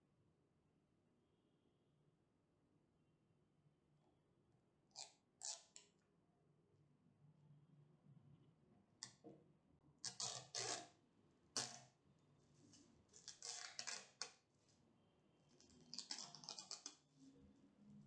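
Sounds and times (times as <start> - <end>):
plastic film crinkling: 13.2 - 14.2.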